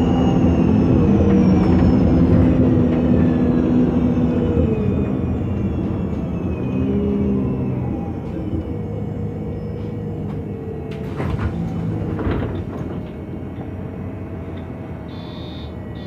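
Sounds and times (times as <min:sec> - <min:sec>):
bus engine running: 0:00.0 - 0:16.0.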